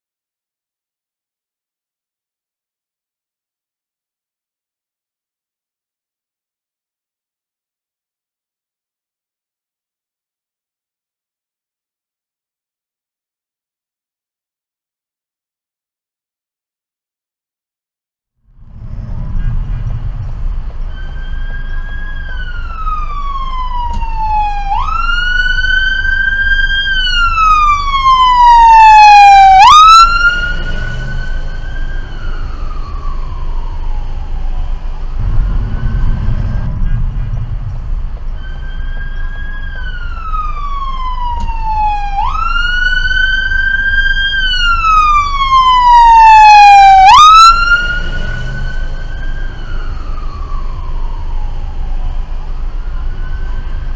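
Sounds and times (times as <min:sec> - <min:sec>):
traffic rumble: 0:18.4 - 0:53.9
police siren wailing: 0:18.6 - 0:53.9.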